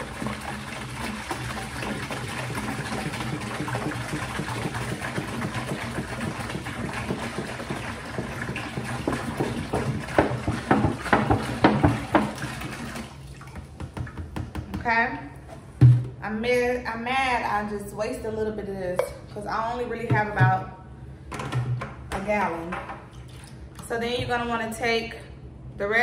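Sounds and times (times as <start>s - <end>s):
juice pouring into a bucket: 0.0s - 13.7s.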